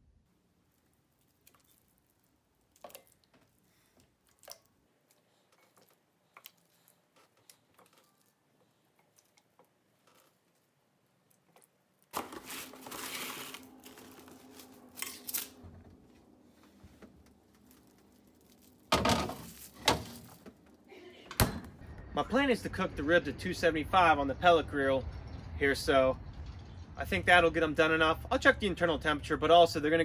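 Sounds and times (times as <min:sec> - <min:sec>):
plastic cling wrap crinkling: 0:00.6 - 0:20.9.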